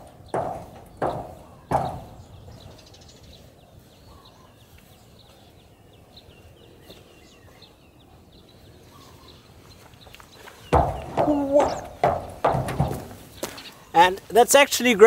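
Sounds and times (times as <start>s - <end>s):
footstep ringing on steel pipe: 0.0s - 2.8s, 10.7s - 13.3s
faint outdoor ambience: 0.0s - 15.0s.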